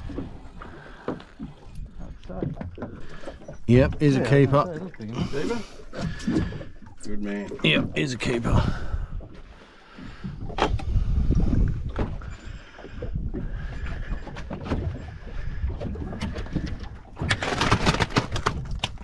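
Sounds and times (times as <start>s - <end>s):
wind rumbling on microphone: 10.0s - 19.0s
knocks of handling fish: 15.8s - 19.0s
ice crunching and rattling: 17.3s - 19.0s.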